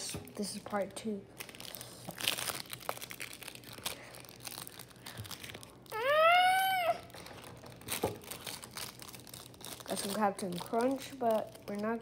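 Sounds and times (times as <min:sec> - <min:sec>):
plastic wrapper crinkling and tearing: 0:00.3 - 0:12.0
high voice-like cry: 0:05.9 - 0:07.1.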